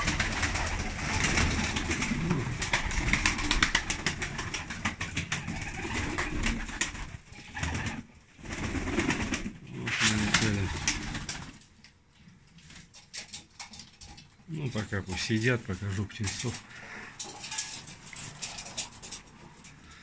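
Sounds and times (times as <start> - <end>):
pigeons cooing: 0.0 - 11.5
pigeon wings flapping: 0.0 - 11.7.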